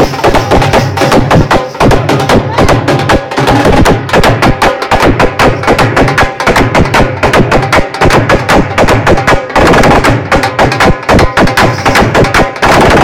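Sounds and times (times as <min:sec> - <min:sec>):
dhol drum beaten rapidly: 0:00.0 - 0:13.0.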